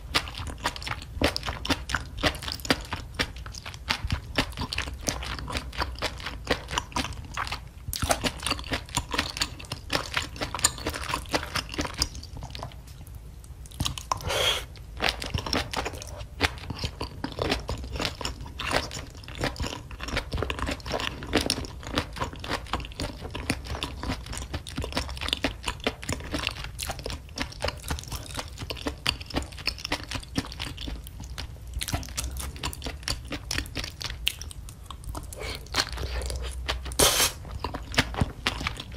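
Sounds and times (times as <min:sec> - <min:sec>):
person chewing food: 0:00.0 - 0:38.9
wet mouth clicks: 0:34.3 - 0:38.2.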